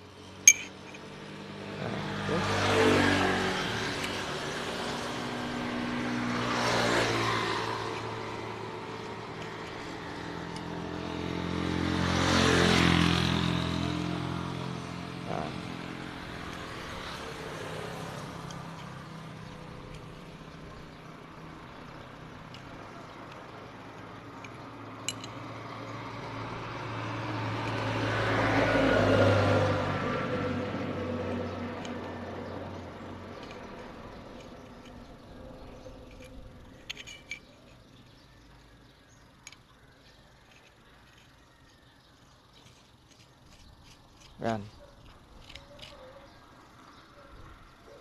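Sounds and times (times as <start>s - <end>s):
low engine hum: 0.0s - 37.0s
vehicles passing: 0.0s - 48.0s.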